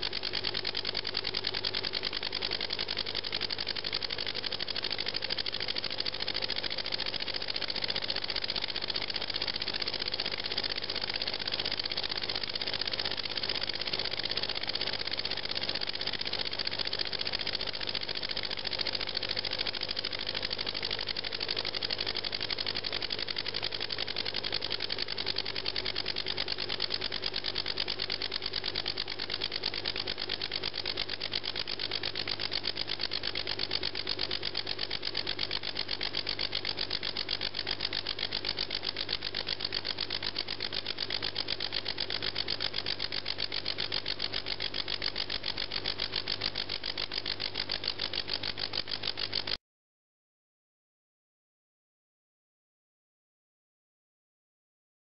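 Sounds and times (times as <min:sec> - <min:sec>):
small air engine ticking: 0:00.0 - 0:49.6.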